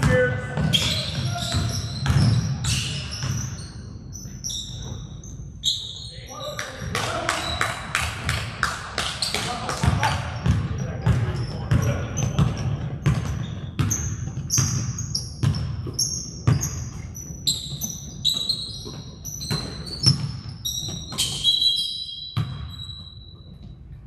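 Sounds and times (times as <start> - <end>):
basketball dribbling on gym floor: 0.0 - 2.6, 9.2 - 21.5
sneaker squeaks: 0.0 - 8.0, 9.0 - 24.0.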